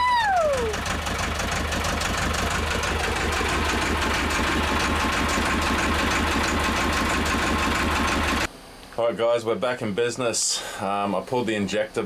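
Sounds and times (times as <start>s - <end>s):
diesel engine idling: 0.0s - 8.5s.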